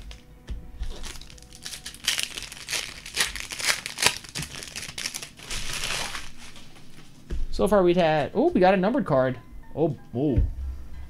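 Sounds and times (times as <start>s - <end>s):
wrappers tearing and crinkling: 0.8s - 6.8s.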